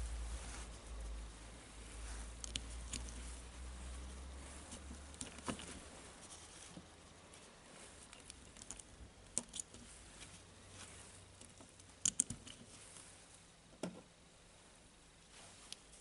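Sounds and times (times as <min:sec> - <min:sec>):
small metal parts clicking: 0:08.0 - 0:09.8, 0:11.4 - 0:12.7.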